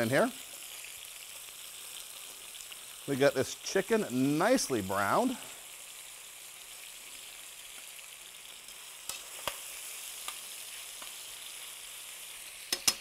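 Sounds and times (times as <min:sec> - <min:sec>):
chicken sizzling in a skillet: 0:00.0 - 0:13.0
metal tongs clicking on pan: 0:08.7 - 0:09.6, 0:12.7 - 0:13.0.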